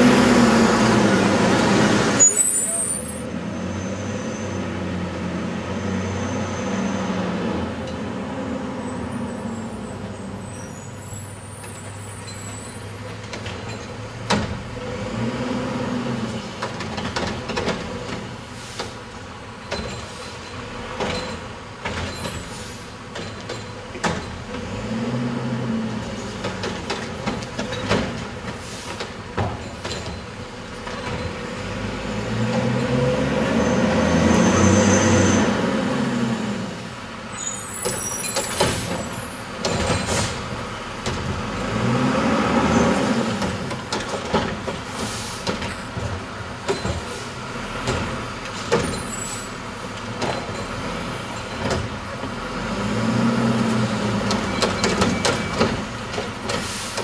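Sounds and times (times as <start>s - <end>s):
carts banging and clanking: 26.2s - 31.4s, 37.7s - 41.6s, 43.4s - 49.3s, 54.1s - 57.0s
garbage truck engine revving: 39.5s - 45.1s, 52.2s - 57.0s.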